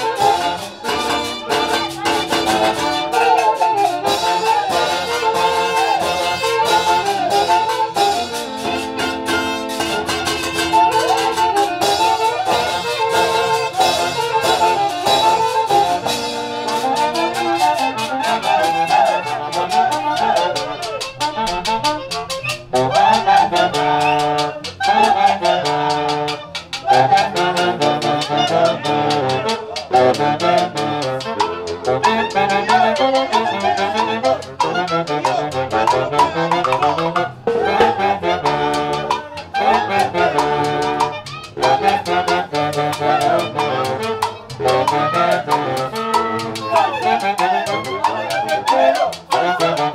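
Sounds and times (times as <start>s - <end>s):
brass and saxophones: 0.0s - 49.9s
orchestra playing festive dance tune: 0.0s - 49.9s
steady beat: 25.6s - 39.6s.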